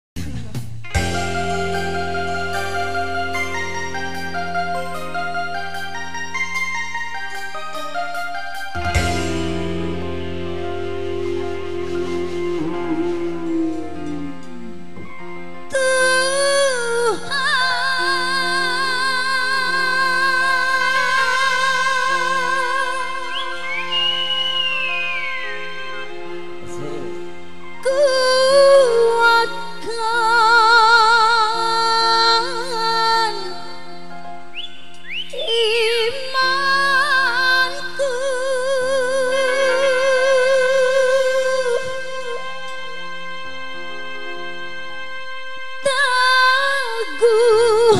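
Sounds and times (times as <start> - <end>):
backing music: 0.2 - 47.9.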